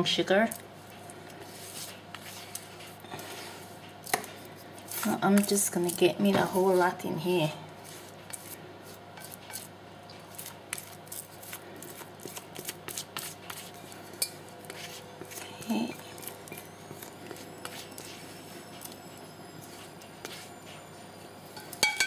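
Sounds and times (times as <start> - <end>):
utensil scraping mixing bowl: 14.6 - 20.8.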